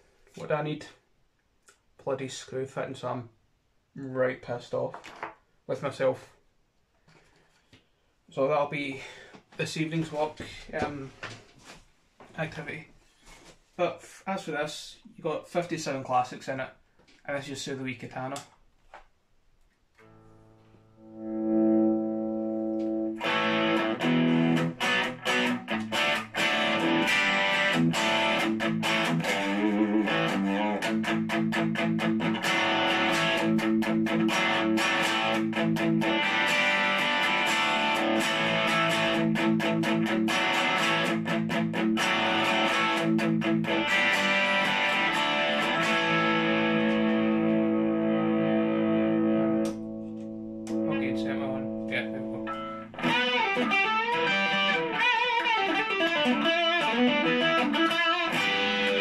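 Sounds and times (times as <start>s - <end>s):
distorted electric guitar riffs: 20.0s - 59.0s.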